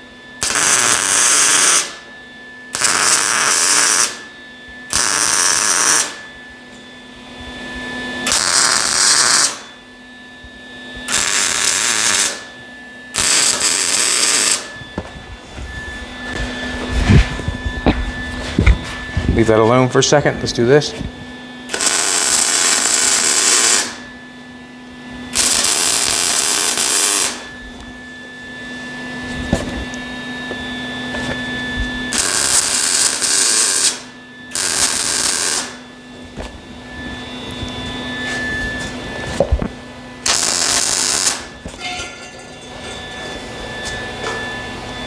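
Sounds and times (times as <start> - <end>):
welder crackling and sizzling: 0.4 - 2.0, 2.7 - 4.3, 4.9 - 6.2, 8.2 - 9.7, 11.1 - 12.5, 13.1 - 14.7, 21.7 - 24.1, 25.3 - 27.5, 32.1 - 35.9, 40.2 - 42.4.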